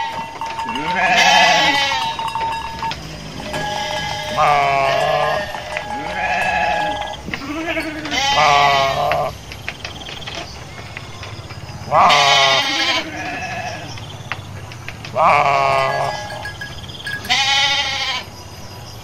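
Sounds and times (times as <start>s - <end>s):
sheep bleating: 0.0s - 9.4s, 11.9s - 13.9s, 15.2s - 16.5s, 17.2s - 18.3s.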